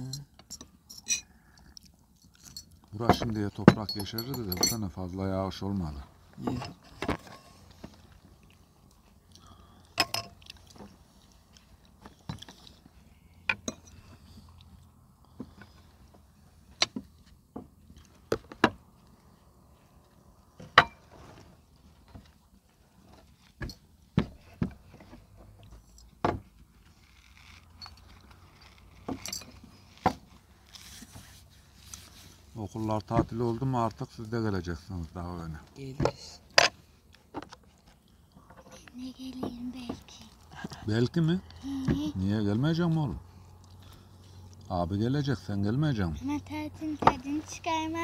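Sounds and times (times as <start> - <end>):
cutlery and dishes clinking: 2.4 - 4.9.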